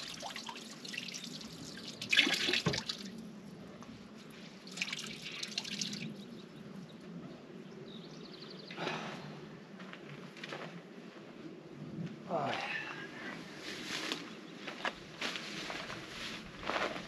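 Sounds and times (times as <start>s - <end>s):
water splashing into plastic bucket: 0.0s - 3.1s.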